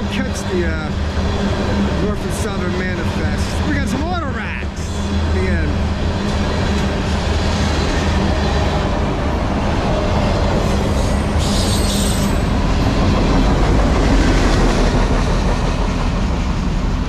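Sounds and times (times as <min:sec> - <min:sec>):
train wheels rumbling on track: 0:00.0 - 0:17.0
high wheel squeal: 0:10.8 - 0:12.6.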